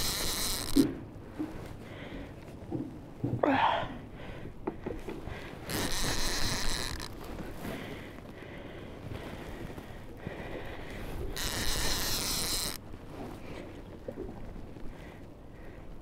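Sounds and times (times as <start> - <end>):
fishing reel drag buzzing: 0.0 - 0.9, 5.6 - 7.2, 11.2 - 12.8.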